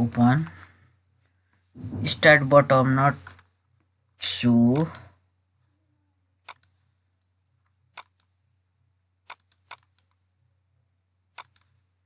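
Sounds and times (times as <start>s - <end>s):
computer mouse clicking: 4.8s - 5.1s, 6.4s - 6.8s, 7.9s - 8.3s, 9.2s - 10.2s, 11.3s - 11.8s.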